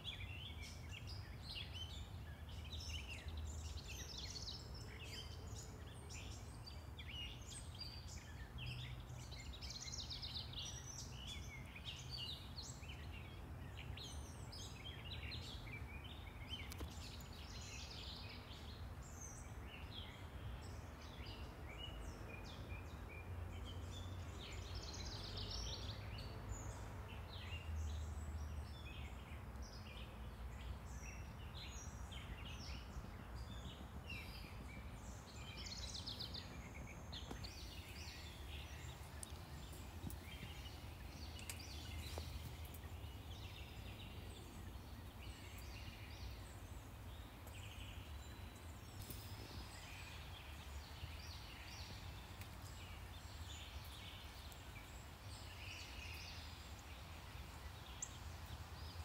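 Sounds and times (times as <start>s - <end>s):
distant traffic rumble: 23.3s - 55.4s
birds chirping and singing: 27.3s - 56.8s.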